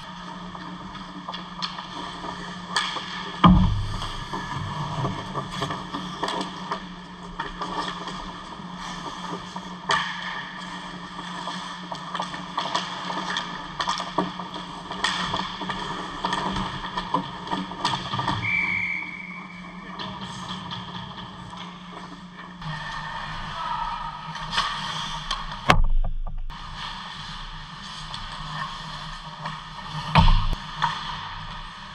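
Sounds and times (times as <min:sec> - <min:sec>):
steady low hum: 0:01.9 - 0:13.7, 0:18.5 - 0:31.9
heavy thump: 0:03.4 - 0:04.1, 0:25.7 - 0:26.5
referee's whistle: 0:18.4 - 0:19.7.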